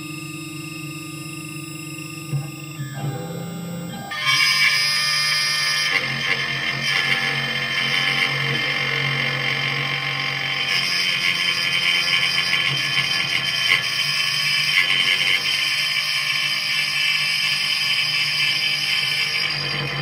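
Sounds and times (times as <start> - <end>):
router spindle milling steel: 4.3 - 20.0.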